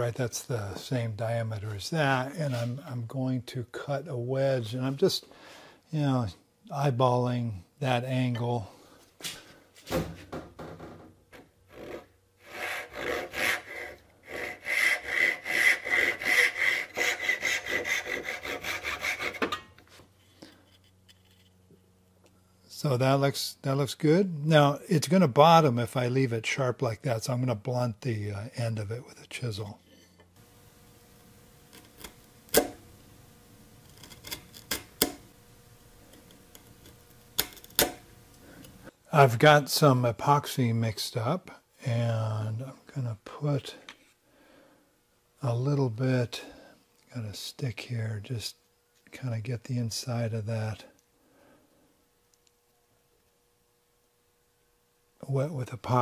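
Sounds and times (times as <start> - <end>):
chisel cutting wood: 11.7 - 19.6, 30.4 - 32.9, 33.6 - 35.2, 36.1 - 38.0
hand saw sawing wood: 11.7 - 19.6.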